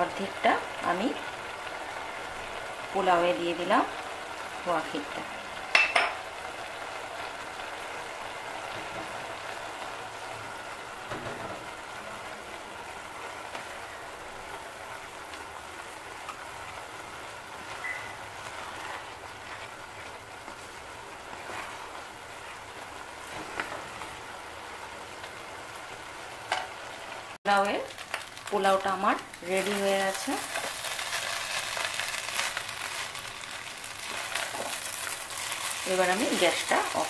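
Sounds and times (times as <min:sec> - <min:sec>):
rice sizzling in a pot: 0:00.0 - 0:37.0
wooden spatula scraping pot: 0:18.4 - 0:20.6, 0:21.2 - 0:22.0.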